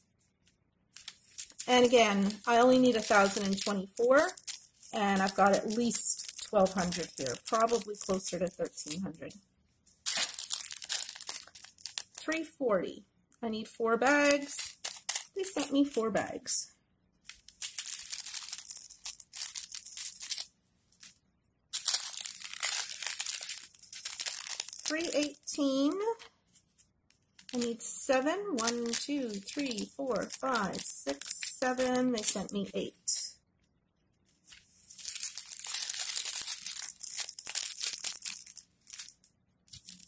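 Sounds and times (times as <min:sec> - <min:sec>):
plastic bags crinkling: 0:01.0 - 0:09.1, 0:09.9 - 0:12.3, 0:14.0 - 0:16.2, 0:17.2 - 0:25.4, 0:27.4 - 0:32.5, 0:34.4 - 0:40.0.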